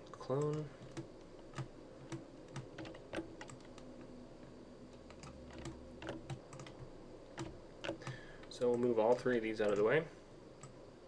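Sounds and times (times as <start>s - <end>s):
keyboard and mouse clicking: 0.3s - 3.9s, 4.9s - 8.9s.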